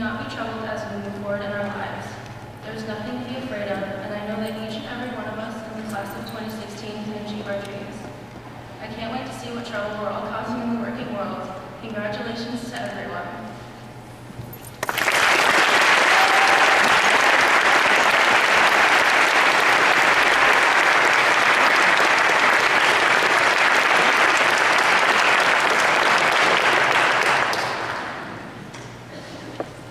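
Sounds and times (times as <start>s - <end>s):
audience applauding: 14.8s - 28.4s.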